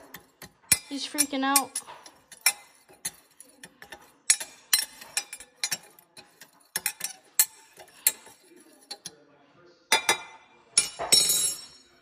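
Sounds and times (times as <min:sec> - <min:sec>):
metal spoon clinking against glass: 0:00.0 - 0:09.2, 0:09.9 - 0:12.0.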